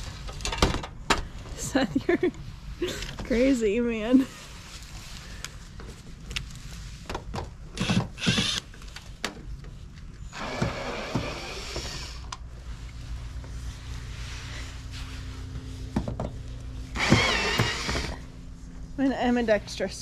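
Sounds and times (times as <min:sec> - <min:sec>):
cordless drill backing out screws: 0:17.0 - 0:18.2.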